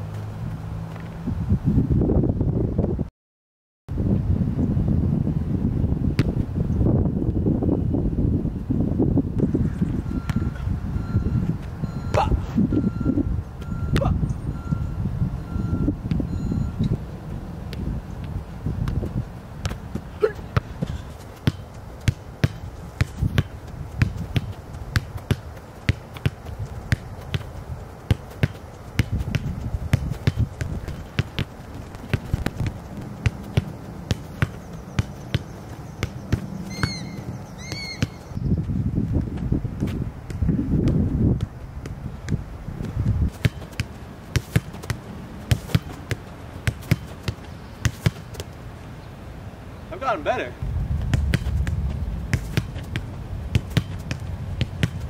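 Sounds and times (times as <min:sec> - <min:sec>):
ball hitting concrete wall: 0:18.8 - 0:27.5, 0:28.1 - 0:37.0, 0:39.8 - 0:48.5, 0:51.0 - 0:55.0
boot kicking ball: 0:18.8 - 0:38.3, 0:39.4 - 0:48.3, 0:51.0 - 0:55.0
low rumble: 0:50.6 - 0:54.8.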